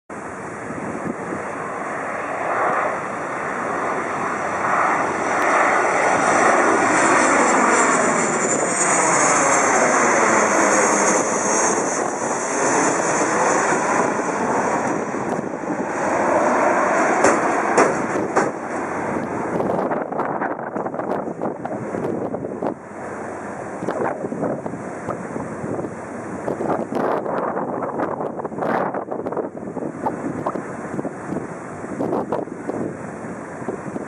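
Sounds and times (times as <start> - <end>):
high engine whine falling in pitch: 0.1 - 16.6
jet engines passing overhead: 0.1 - 34.0.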